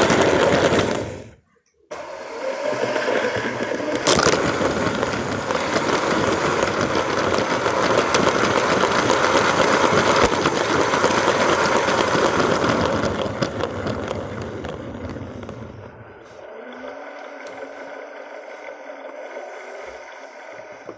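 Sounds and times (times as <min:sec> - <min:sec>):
plastic wheels rattling on track: 0:00.0 - 0:01.3, 0:02.4 - 0:16.0
toy train motor whirring: 0:02.0 - 0:16.0
rapid clicks: 0:02.8 - 0:16.2.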